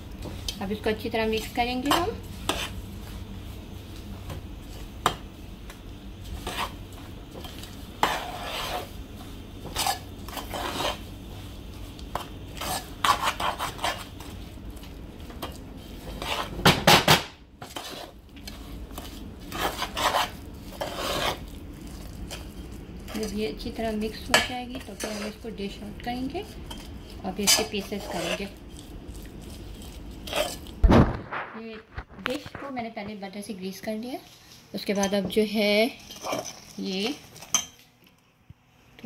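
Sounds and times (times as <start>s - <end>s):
spoon scraping metal pot: 7.5s - 8.9s, 17.6s - 21.5s, 24.2s - 25.5s, 26.5s - 28.5s, 30.2s - 30.7s.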